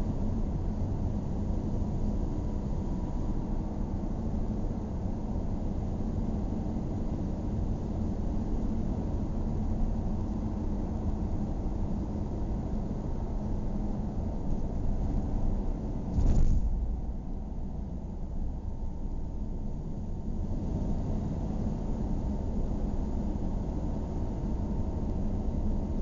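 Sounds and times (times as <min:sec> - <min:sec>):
rush of noise: 0:16.1 - 0:17.6.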